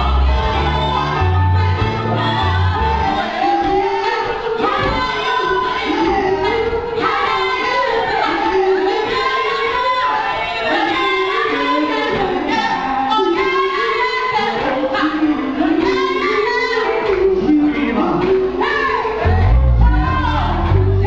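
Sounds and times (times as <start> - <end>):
live band playing: 0.0 - 3.3
women singing: 0.0 - 21.0.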